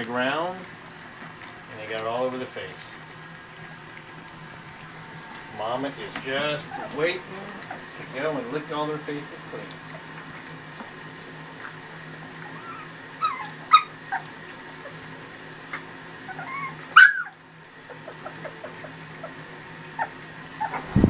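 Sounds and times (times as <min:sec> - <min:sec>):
steady low hum: 0:00.0 - 0:21.0
puppies whimpering and yipping: 0:03.3 - 0:08.6, 0:11.6 - 0:21.0.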